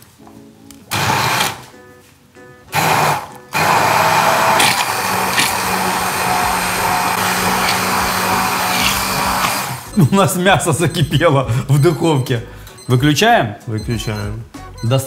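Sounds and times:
immersion blender running: 0.9s - 1.6s, 2.7s - 9.9s.

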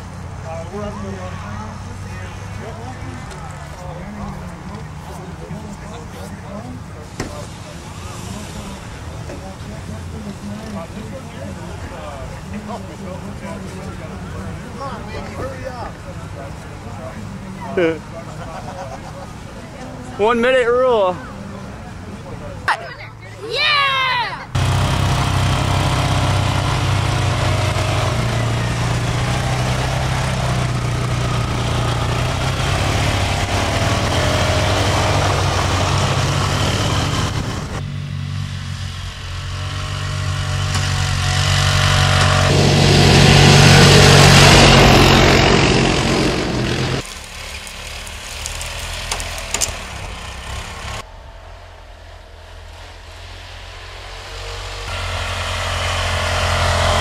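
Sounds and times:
vehicle engine humming: 0.0s - 57.0s
engine rushing run: 24.5s - 57.0s.

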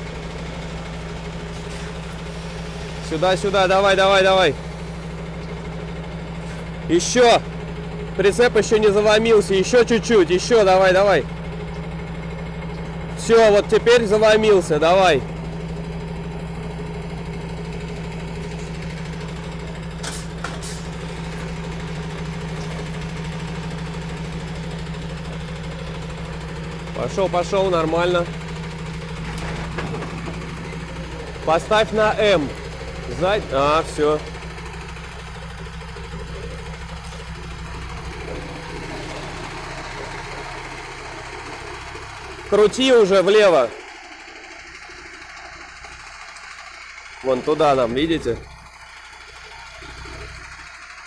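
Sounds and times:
diesel truck engine running: 0.0s - 51.0s
short air hisses: 20.0s - 20.9s.

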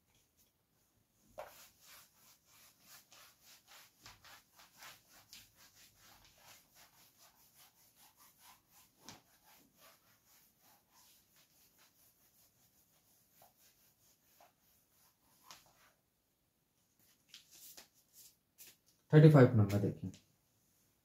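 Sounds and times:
scratching strokes on writing surface: 1.2s - 16.0s.

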